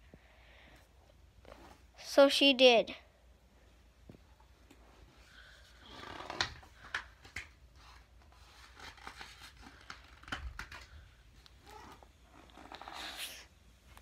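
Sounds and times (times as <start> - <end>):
paper pages rustling: 6.1 - 11.1
pages tapping when turned: 8.6 - 11.0.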